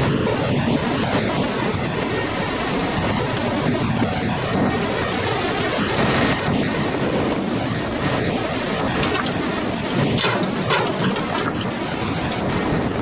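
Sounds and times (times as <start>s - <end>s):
wind buffeting microphone: 0.0s - 13.0s
hydraulic crane running: 7.7s - 13.0s.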